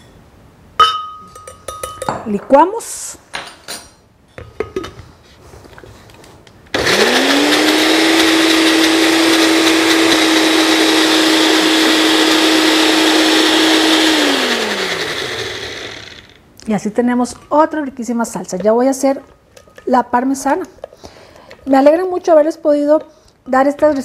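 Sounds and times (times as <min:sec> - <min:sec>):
blender motor running: 0:06.7 - 0:16.4.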